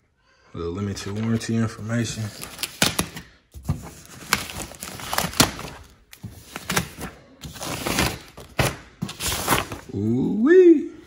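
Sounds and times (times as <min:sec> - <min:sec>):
packing wrap rustling: 0:01.0 - 0:09.9
plastic crackles: 0:03.9 - 0:09.9.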